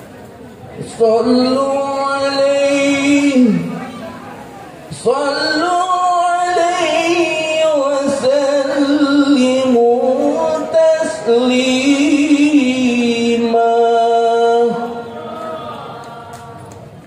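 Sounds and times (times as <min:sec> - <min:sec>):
person singing devotional song: 0:00.9 - 0:03.7, 0:04.9 - 0:15.2.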